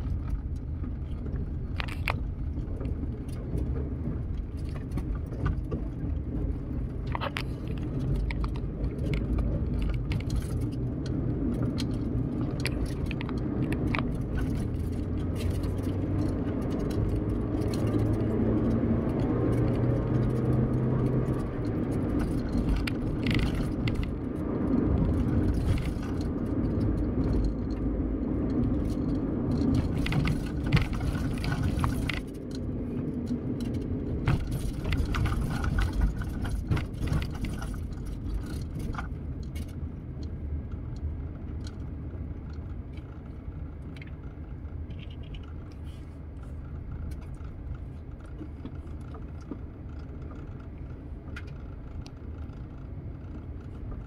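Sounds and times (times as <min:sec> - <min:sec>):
interior clicks and rattles: 0:00.0 - 0:54.0
road and engine rumble: 0:00.0 - 0:54.0.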